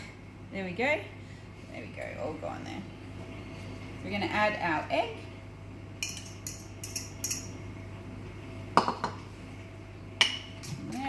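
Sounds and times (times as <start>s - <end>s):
fork clinking against metal bowl: 6.0s - 7.6s.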